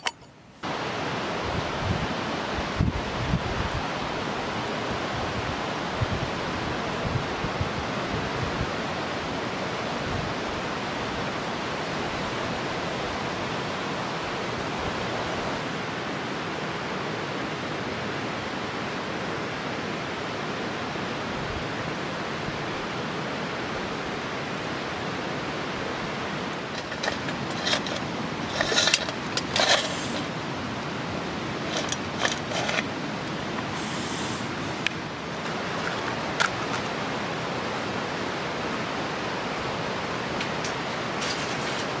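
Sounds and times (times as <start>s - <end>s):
river rushing: 0.0s - 42.0s
sharp clicks and rustles: 26.6s - 30.4s, 31.6s - 33.7s, 35.4s - 37.0s.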